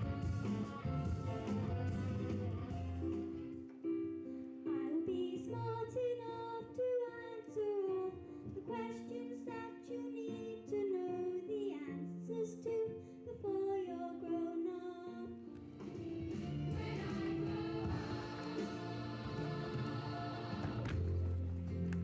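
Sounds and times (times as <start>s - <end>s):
instrumental accompaniment: 0.0s - 5.2s, 14.8s - 22.0s
girl singing into microphone: 4.7s - 15.5s.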